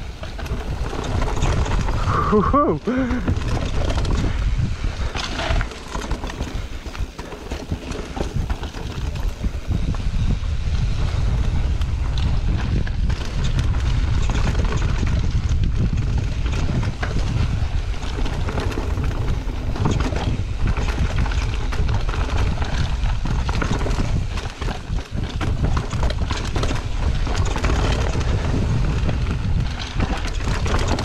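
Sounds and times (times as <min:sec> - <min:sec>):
bike rattling and knocking: 0:00.0 - 0:31.0
wind on microphone: 0:00.0 - 0:31.0.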